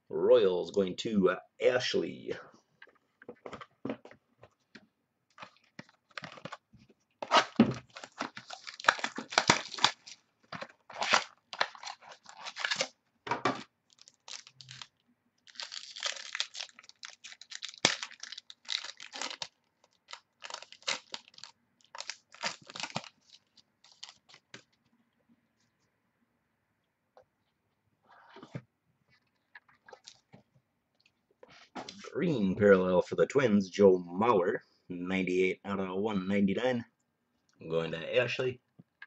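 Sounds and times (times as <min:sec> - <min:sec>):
foil wrapper tearing and crinkling: 0:07.2 - 0:12.9, 0:13.9 - 0:24.6.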